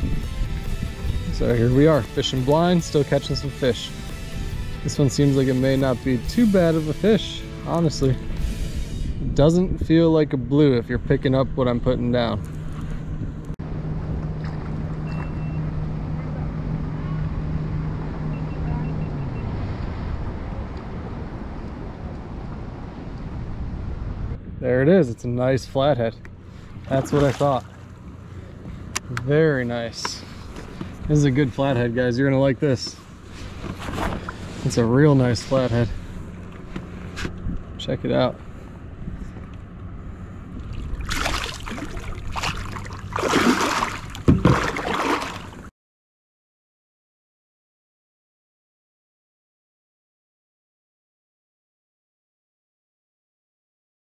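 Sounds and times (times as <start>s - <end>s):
wind rumbling on microphone: 0.0s - 2.0s, 7.9s - 26.9s, 33.1s - 44.8s
steady low hum: 4.0s - 45.7s
sharp water smack: 26.9s - 27.8s, 40.8s - 45.7s
fish splashing at surface: 40.6s - 45.7s.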